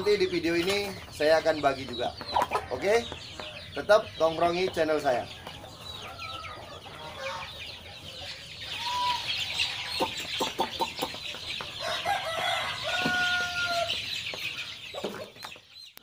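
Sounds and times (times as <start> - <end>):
chickens clucking: 0.0 - 16.0
chicks peeping: 0.0 - 16.0
drawn-out chicken call: 5.5 - 15.4.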